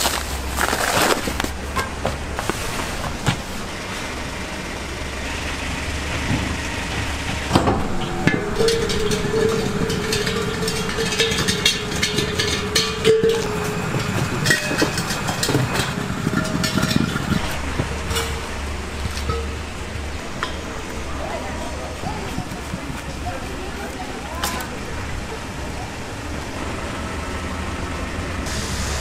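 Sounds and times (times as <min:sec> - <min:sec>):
gas cylinders rolling on asphalt: 0:00.0 - 0:29.0
metal cylinder ringing: 0:06.6 - 0:21.8.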